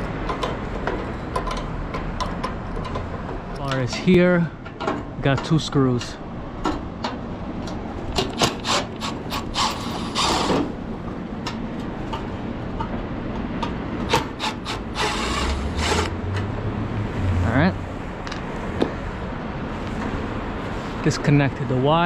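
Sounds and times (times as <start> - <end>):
cordless driver running: 14.1 - 16.2.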